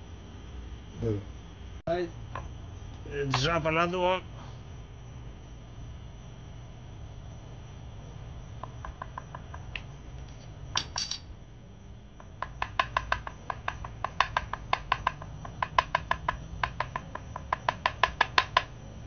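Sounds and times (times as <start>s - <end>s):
sharp clinks: 10.8s - 11.3s.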